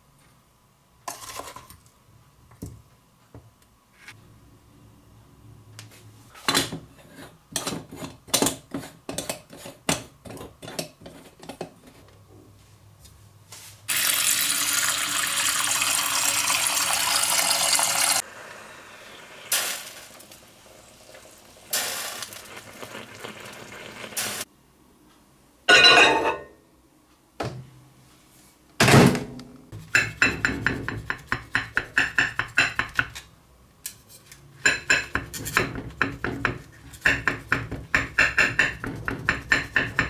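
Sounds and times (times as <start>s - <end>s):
tap water running into metal pot: 13.9s - 18.2s
faint hissing rush: 18.2s - 24.5s.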